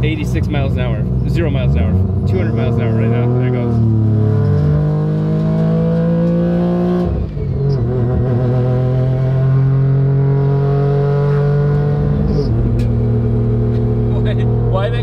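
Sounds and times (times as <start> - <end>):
rotary car engine accelerating: 0.0 - 15.0.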